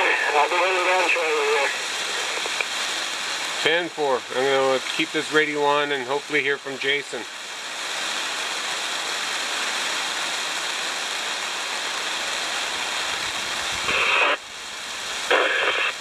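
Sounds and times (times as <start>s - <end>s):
two-way radio static: 0.0s - 2.9s, 3.6s - 7.3s, 13.7s - 14.4s, 15.1s - 16.0s
rain hiss: 0.0s - 16.0s
wind: 0.0s - 16.0s.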